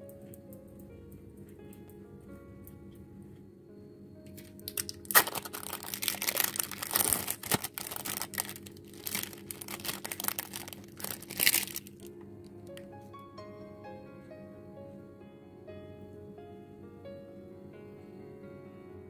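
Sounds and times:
soft background music: 0.0s - 19.0s
plastic wrapper crinkling: 4.4s - 12.8s.

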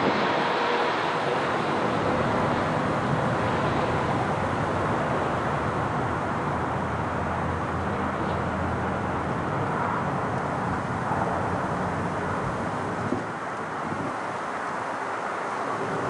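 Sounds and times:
jet engine rush: 0.0s - 16.0s.

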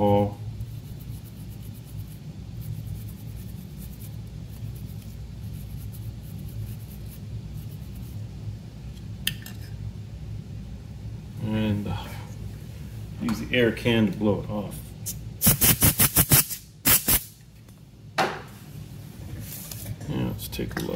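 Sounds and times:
steady low hum: 0.0s - 20.9s
brush scrubbing circuit board: 0.6s - 8.2s.

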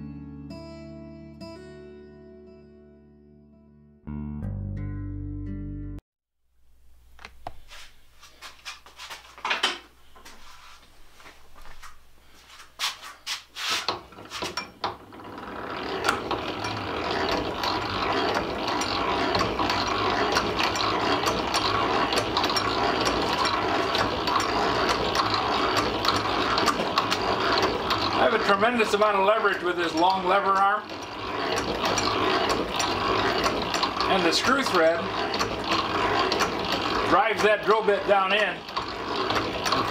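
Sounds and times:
hand-cranked drill press grinding: 11.6s - 39.9s.

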